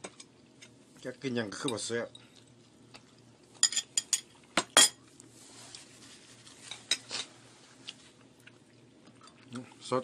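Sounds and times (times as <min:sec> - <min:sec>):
cutlery clinking against plates: 0:03.6 - 0:05.0.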